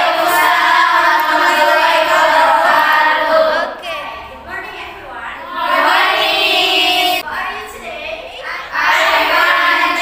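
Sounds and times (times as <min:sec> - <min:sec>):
girls singing in unison: 0:00.0 - 0:04.0, 0:05.4 - 0:07.2, 0:08.6 - 0:10.0.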